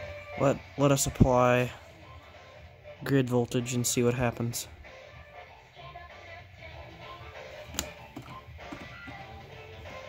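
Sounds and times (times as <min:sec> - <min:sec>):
music from a radio: 0:00.0 - 0:10.0.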